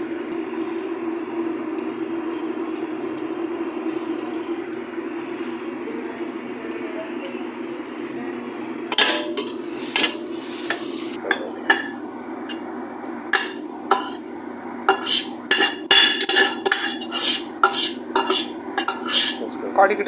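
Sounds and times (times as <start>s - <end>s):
metal spoon scraping steel pot: 8.9s - 12.0s, 13.4s - 14.2s, 14.9s - 19.4s.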